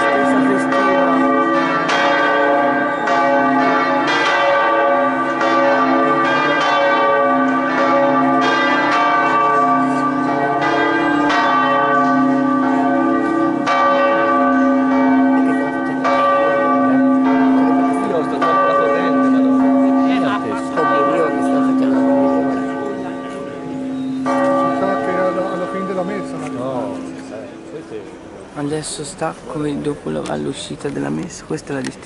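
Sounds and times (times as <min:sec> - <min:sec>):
church bells pealing: 0:00.0 - 0:29.0.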